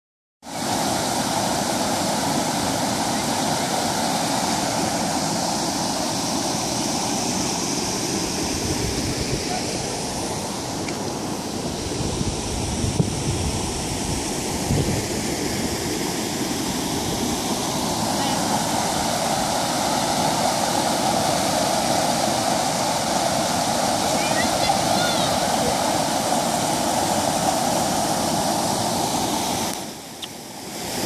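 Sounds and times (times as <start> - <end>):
river rushing over a weir: 0.5 - 31.0
wind bumps on microphone: 8.5 - 9.8, 11.7 - 16.0.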